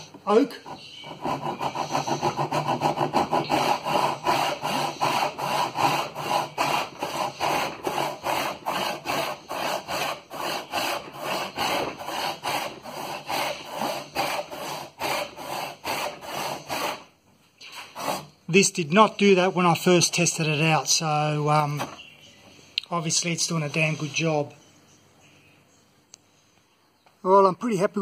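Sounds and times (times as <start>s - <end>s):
hand saw cutting wood: 0.0s - 21.9s.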